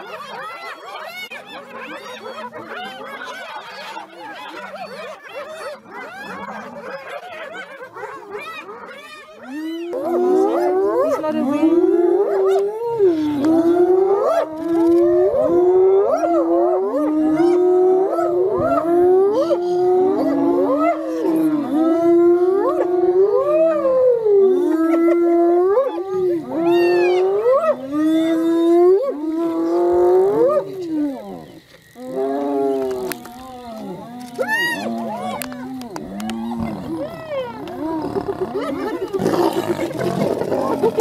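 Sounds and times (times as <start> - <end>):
hyenas whooping: 8.2 - 41.0.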